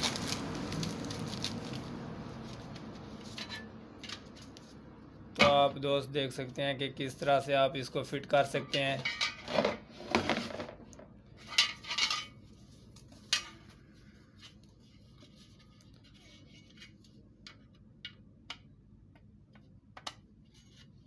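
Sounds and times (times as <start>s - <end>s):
foam and plastic rustling: 0.0s - 3.5s.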